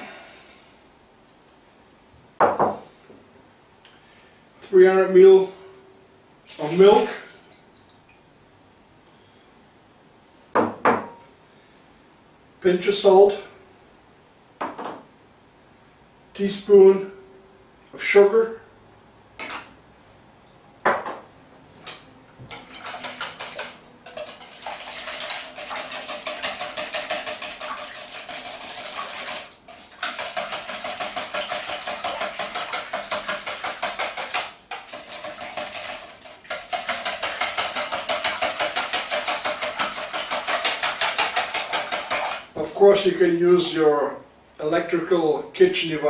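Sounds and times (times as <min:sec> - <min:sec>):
wire whisk beating in plastic bowl: 0:22.5 - 0:42.6.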